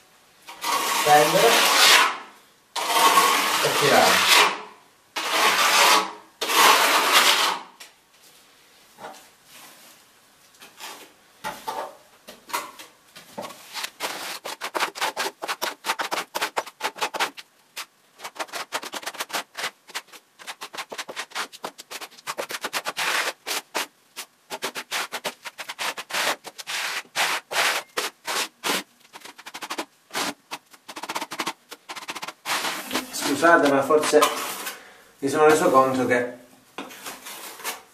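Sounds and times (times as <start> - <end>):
trowel scraping plaster on wall: 0.5 - 7.8, 13.4 - 34.8, 36.9 - 37.9.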